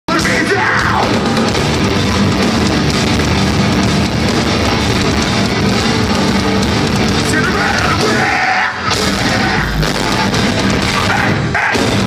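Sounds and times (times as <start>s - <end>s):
distorted electric guitars: 0.1s - 12.0s
pounding drums: 0.1s - 12.0s.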